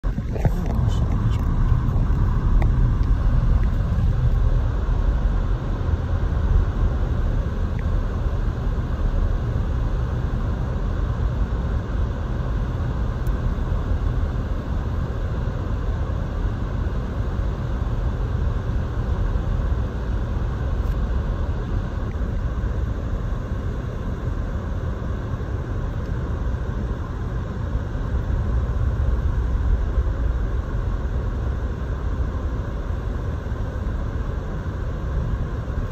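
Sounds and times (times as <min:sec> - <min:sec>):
car driving on slushy road: 0:00.1 - 0:04.9.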